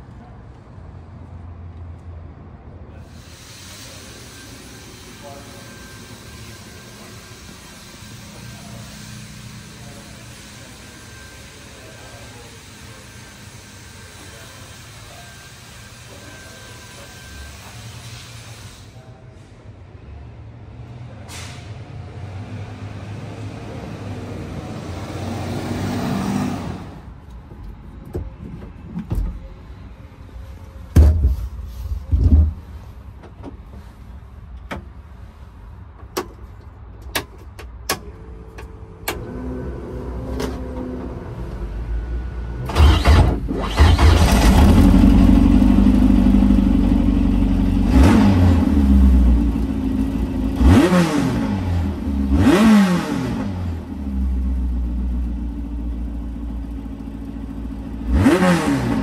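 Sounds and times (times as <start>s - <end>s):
engine throttle blips: 42.6s - 53.5s.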